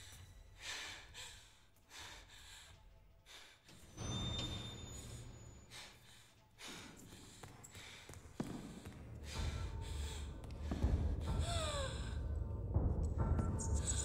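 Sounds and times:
woman panting: 5.7s - 12.4s.

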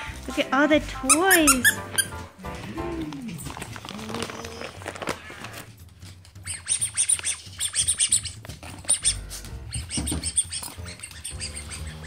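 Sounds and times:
squeaky dog toy: 1.1s - 2.2s, 6.3s - 12.0s
plastic bag rustling: 2.3s - 6.4s.

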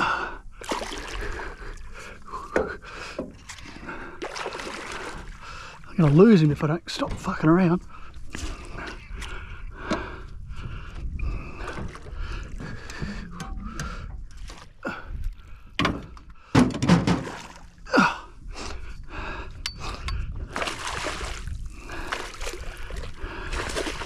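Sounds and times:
man gasping and breathing hard: 0.0s - 4.3s, 7.9s - 16.7s, 17.8s - 20.6s, 21.6s - 24.0s
water splashing: 0.6s - 2.5s, 3.4s - 6.6s, 17.0s - 18.2s, 20.5s - 24.0s.

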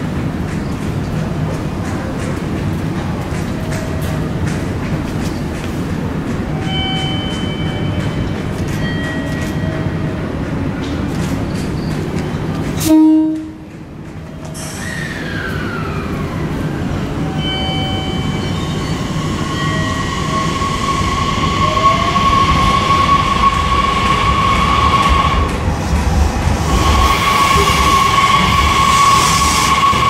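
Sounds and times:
train horn blast: 12.8s - 13.6s
train traction motors whining: 14.4s - 30.0s.

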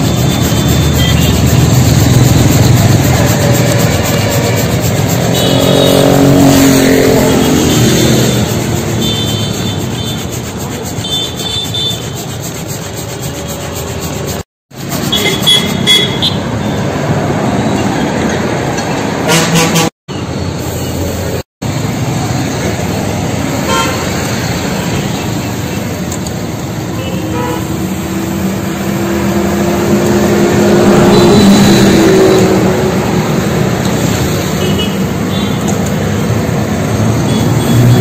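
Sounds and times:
vehicle horns: 0.0s - 12.2s, 15.0s - 16.8s, 19.2s - 20.0s, 23.6s - 25.0s, 26.9s - 28.0s, 30.6s - 33.0s, 34.2s - 35.8s, 37.1s - 38.0s
held horn-like tone: 0.0s - 12.3s, 30.2s - 33.0s
road traffic passing: 0.0s - 38.0s.

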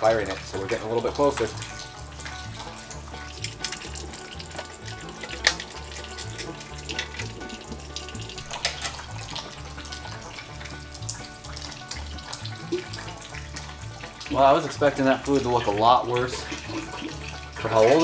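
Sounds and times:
background music with bass pulse: 0.0s - 18.0s
fluid splashing into containers: 0.0s - 18.0s.

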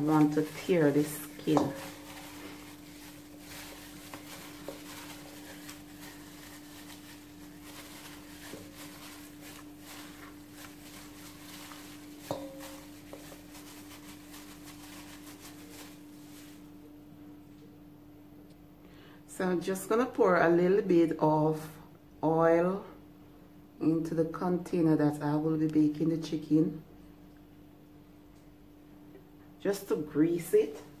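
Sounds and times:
gloved hand squishing raw chicken: 0.0s - 16.8s.

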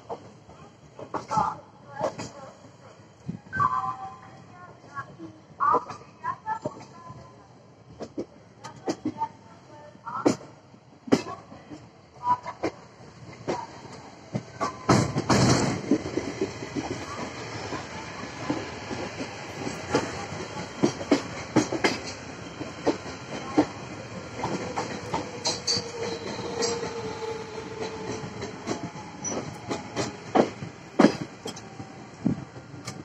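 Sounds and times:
train wheels clattering over rail joints: 12.6s - 31.8s.

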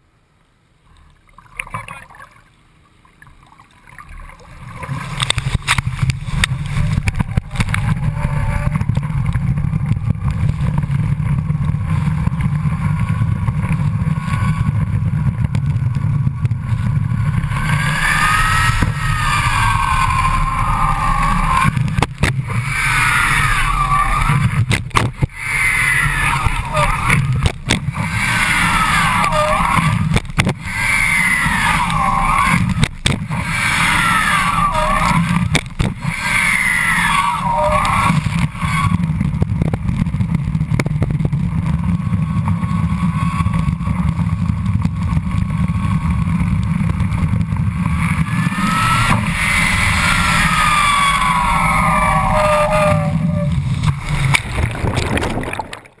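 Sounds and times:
rising and falling whine: 4.2s - 55.6s
water ski rushing spray: 4.5s - 55.8s
wind buffeting microphone: 4.6s - 31.6s.

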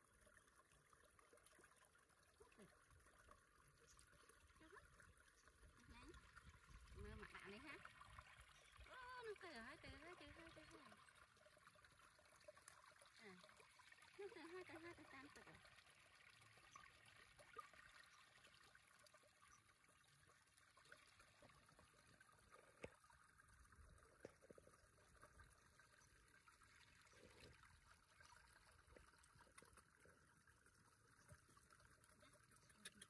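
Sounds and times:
water trickling: 0.0s - 33.0s.

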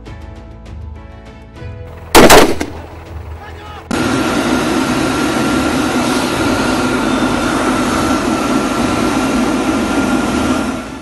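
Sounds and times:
jet engine whine and rush: 2.6s - 11.0s.

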